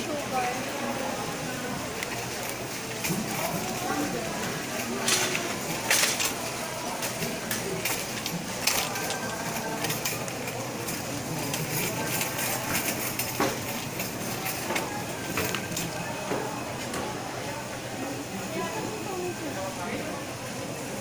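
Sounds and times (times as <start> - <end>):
shopping cart rattling: 0.0 - 21.0.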